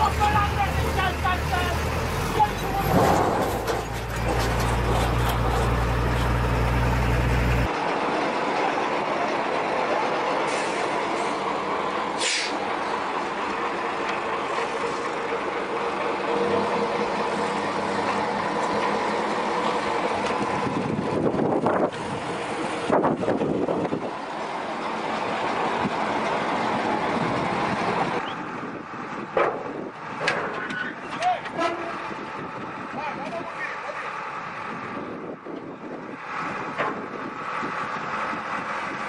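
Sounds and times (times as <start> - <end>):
truck engines rumbling: 0.0 - 39.0
compressed air hiss: 12.2 - 12.6.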